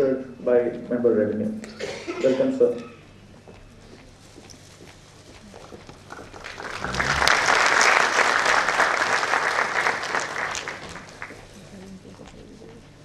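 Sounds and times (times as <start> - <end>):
audience applauding: 6.0 - 11.5.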